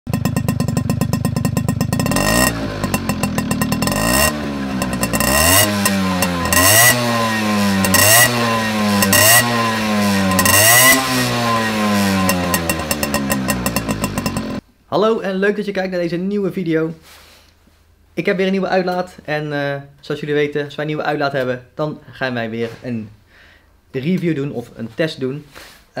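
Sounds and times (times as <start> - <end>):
moped engine revving: 0.1 - 14.6.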